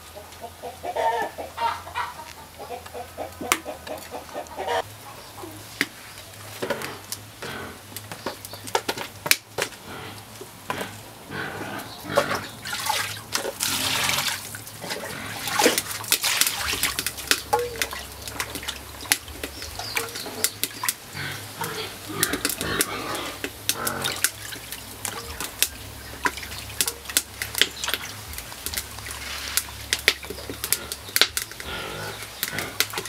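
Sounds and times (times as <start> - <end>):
chickens clucking: 0.0 - 9.0, 9.6 - 12.8, 13.7 - 33.0
water splashing in a basin: 12.1 - 33.0.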